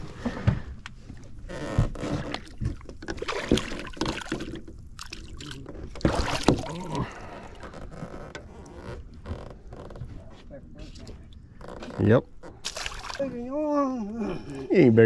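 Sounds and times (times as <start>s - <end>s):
water sloshing: 0.0s - 14.9s
fish splashing: 2.4s - 7.7s, 12.5s - 13.5s.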